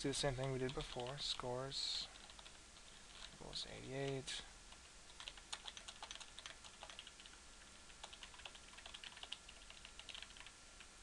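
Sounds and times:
keyboard typing: 0.4 - 1.4, 2.2 - 3.4, 5.1 - 7.4, 8.0 - 10.6.

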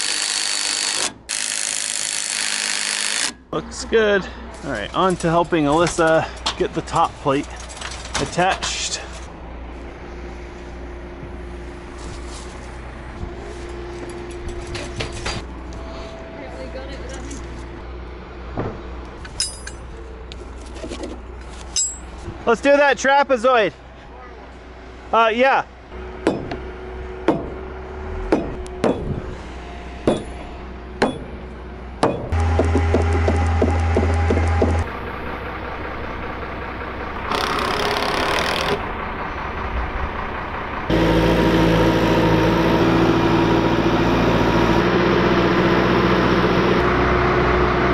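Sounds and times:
crane engine droning: 0.0 - 22.4, 23.8 - 47.9
hammer striking steel pry bar: 26.2 - 26.6, 27.3 - 27.6, 28.3 - 29.1, 30.1 - 30.4, 31.0 - 31.3.

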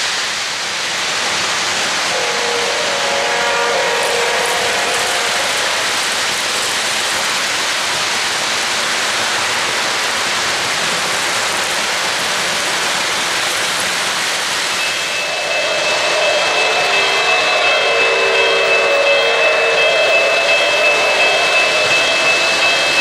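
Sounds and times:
model train wheels rolling roar: 0.0 - 23.0
train horn tone: 2.1 - 6.2, 14.8 - 23.0.

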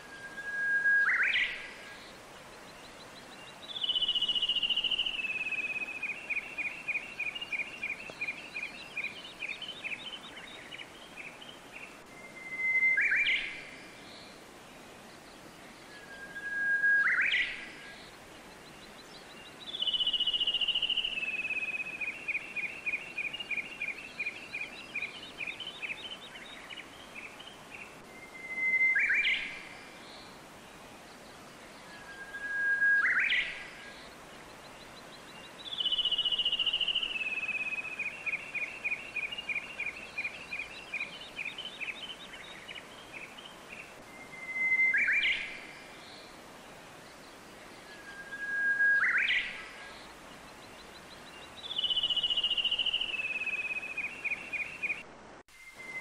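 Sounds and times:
running water hiss: 0.0 - 56.0
birdsong: 0.1 - 56.0.

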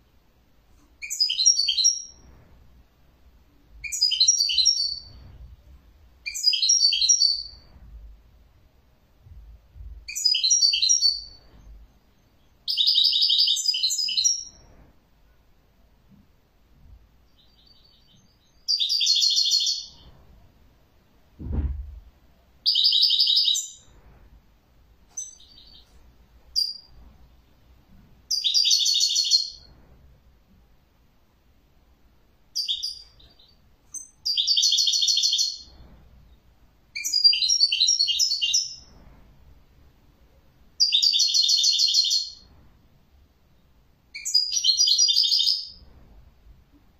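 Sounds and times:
bird chirps: 1.0 - 2.2, 3.8 - 5.2, 6.2 - 7.7, 10.1 - 14.6, 17.2 - 20.1, 22.6 - 23.9, 25.1 - 27.0, 28.3 - 29.7, 32.6 - 35.7, 37.0 - 38.9, 40.8 - 42.5, 43.5 - 45.8
bird singing trilled phrases: 1.0 - 2.2, 3.8 - 5.2, 6.2 - 7.6, 10.1 - 14.6, 17.3 - 20.0, 22.6 - 23.8, 25.1 - 25.9, 26.6 - 26.9, 28.3 - 29.7, 32.6 - 35.7, 37.0 - 38.8, 40.8 - 42.5, 44.2 - 45.8
dull thump: 21.4 - 22.1.

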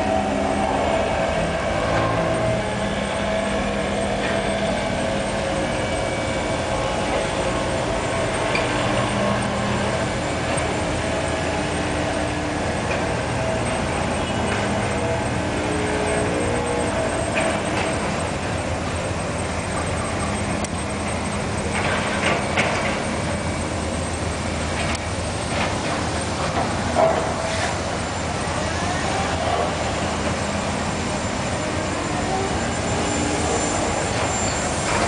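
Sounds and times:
spa water jets churning: 23.1 - 35.0.

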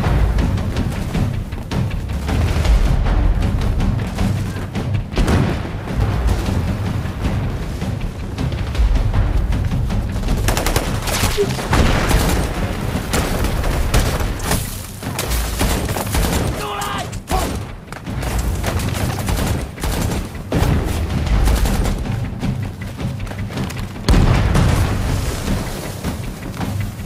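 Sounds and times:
rifle and machine-gun fire: 10.4 - 22.2.

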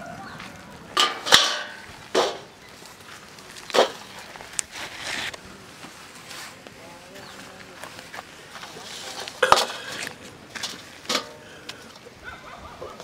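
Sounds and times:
sharp knocks and clatters: 1.0 - 2.5.

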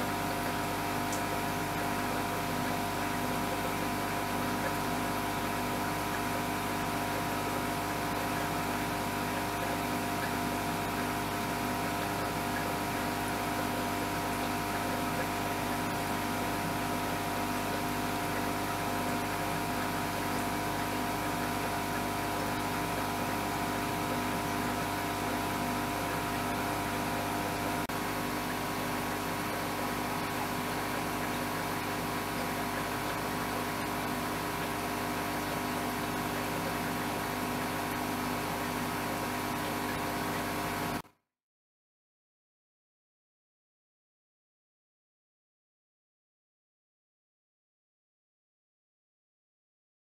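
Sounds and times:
mechanical hum with hiss: 0.0 - 41.0.

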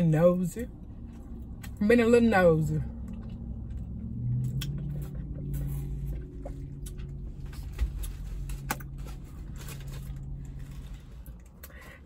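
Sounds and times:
steady low hum: 0.0 - 12.0
chewing: 2.9 - 9.0.

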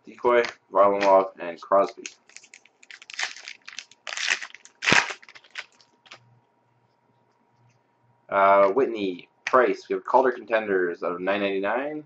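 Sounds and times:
shiny wrapper crinkling: 1.8 - 6.2.

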